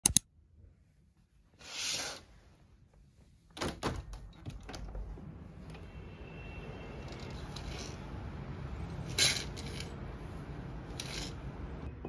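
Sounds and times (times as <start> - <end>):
sliding window clunks and rattles: 3.5 - 5.4.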